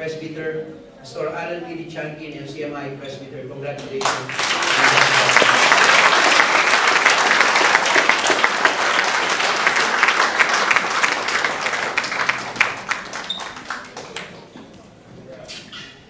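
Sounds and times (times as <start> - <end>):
congregation applauding: 4.0 - 14.6.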